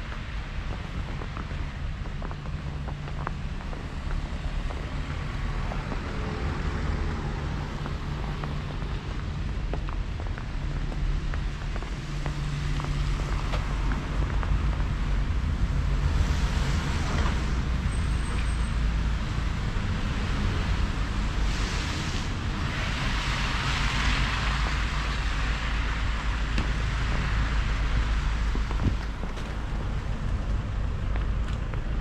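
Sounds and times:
cars passing with tyre hiss: 0.0s - 32.0s
steady low traffic rumble: 0.0s - 32.0s.

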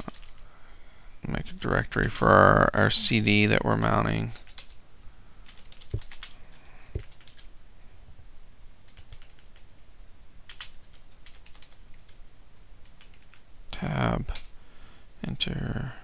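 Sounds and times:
keyboard key clicks: 5.5s - 6.3s.

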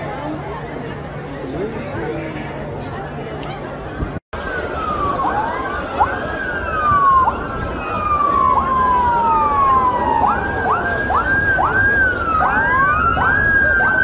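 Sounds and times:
emergency vehicle sirens wailing: 4.4s - 14.0s.

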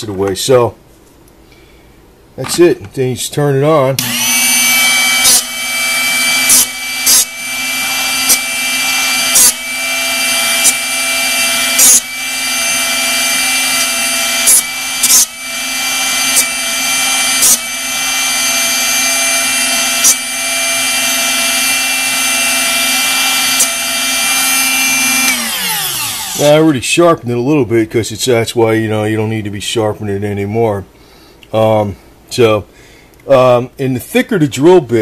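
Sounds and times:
drill bit grinding bursts: 4.0s - 26.6s
sharpener motor whining: 4.0s - 26.6s.

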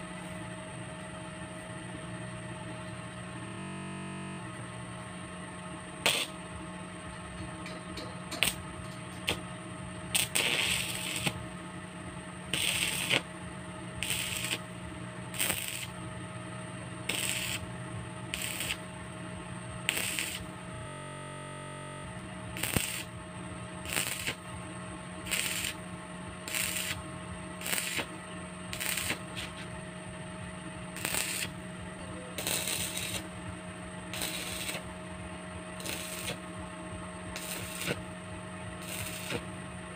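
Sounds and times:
steady hum: 0.0s - 39.9s
welding arc crackling: 6.0s - 6.5s, 7.6s - 9.5s, 10.1s - 11.6s, 12.4s - 13.4s, 14.0s - 16.0s, 17.0s - 19.1s, 19.8s - 20.6s, 22.1s - 23.2s, 23.8s - 24.6s, 25.2s - 29.8s, 30.9s - 31.7s, 32.4s - 33.5s, 34.1s - 35.0s, 35.7s - 36.6s, 37.3s - 39.6s.

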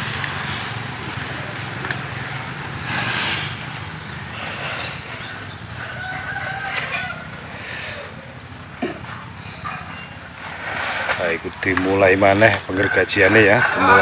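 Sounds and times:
rooster crowing: 5.2s - 8.3s, 12.7s - 14.0s.

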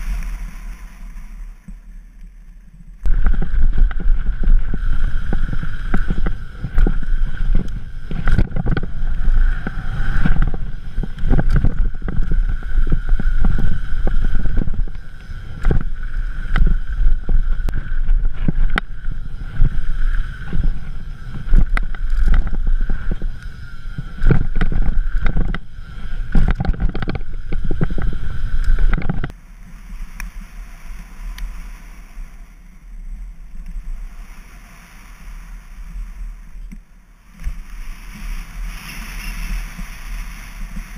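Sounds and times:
tyres on loose dirt: 0.0s - 29.4s
bike rattling over bumps: 2.9s - 29.3s
wind buffeting microphone: 3.0s - 29.4s.

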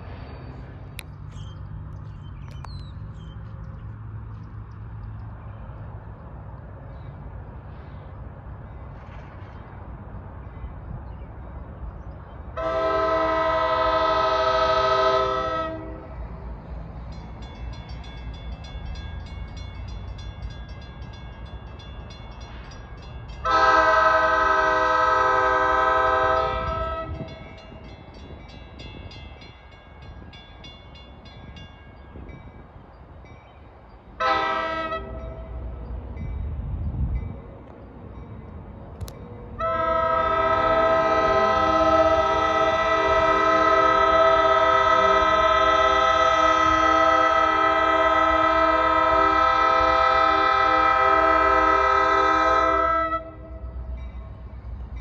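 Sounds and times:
train horn blasts: 12.5s - 16.4s, 23.4s - 27.5s, 34.2s - 35.7s, 39.6s - 54.0s.

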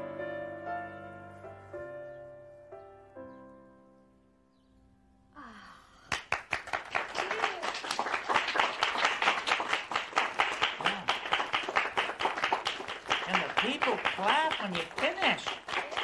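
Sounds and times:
people cheering: 5.4s - 16.0s
audience clapping: 6.0s - 16.0s.

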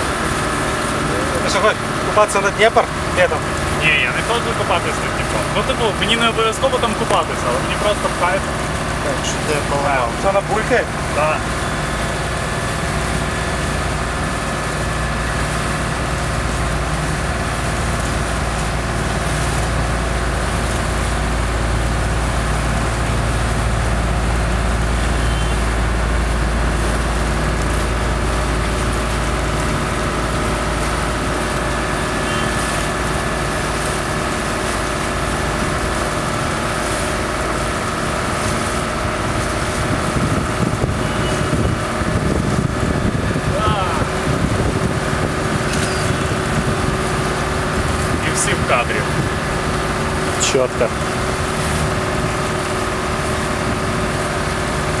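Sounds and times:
boat engine droning: 0.0s - 55.0s
water wash: 0.0s - 55.0s
wind noise: 39.0s - 50.1s.

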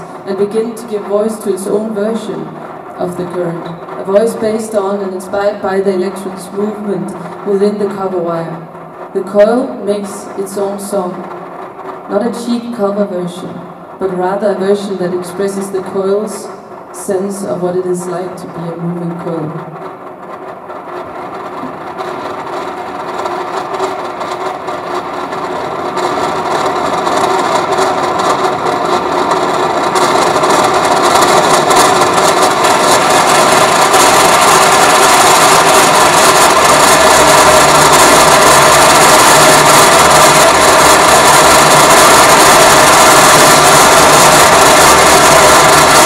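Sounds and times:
grinding electronic drone: 13.4s - 46.0s.

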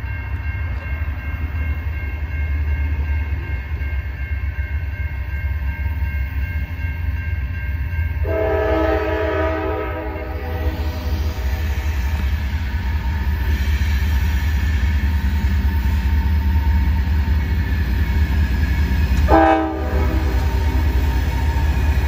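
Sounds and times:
railroad crossing bell ringing: 0.0s - 22.0s
train horn blowing: 8.2s - 12.2s, 19.2s - 21.0s.

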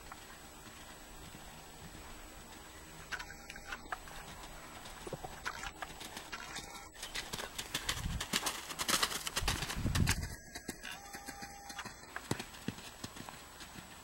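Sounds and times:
horse hoofbeats on sand: 3.8s - 14.0s.

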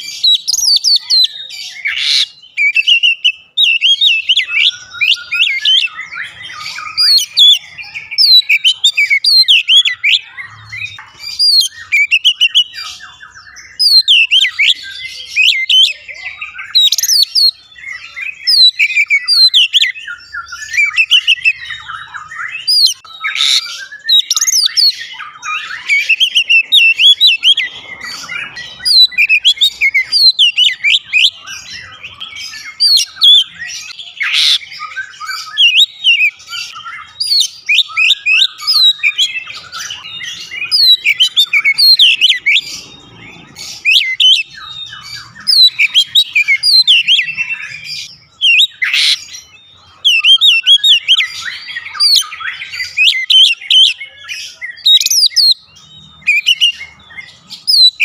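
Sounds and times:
bird singing whistles and chirps: 0.0s - 58.0s.

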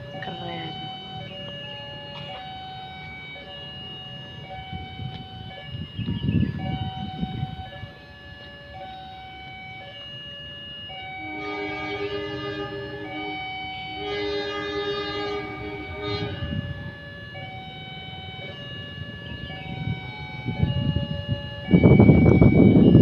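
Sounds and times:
train horn: 11.2s - 16.9s.

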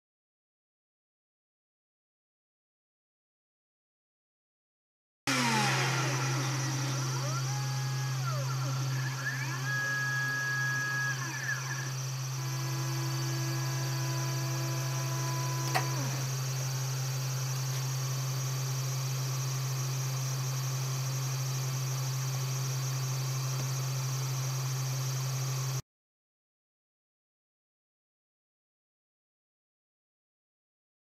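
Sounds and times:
router spindle hum and whine: 5.3s - 25.8s
stepper motor tones: 5.3s - 25.8s
single click: 15.6s - 16.1s.

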